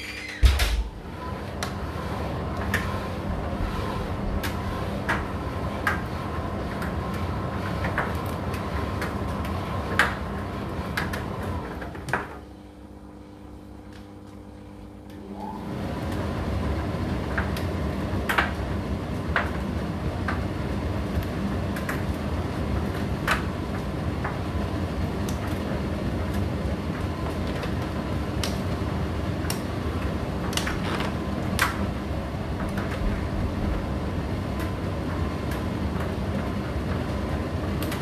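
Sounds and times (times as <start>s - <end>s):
tumble dryer running: 0.0s - 38.0s
clothes knocking in dryer drum: 0.3s - 1.1s, 17.2s - 38.0s.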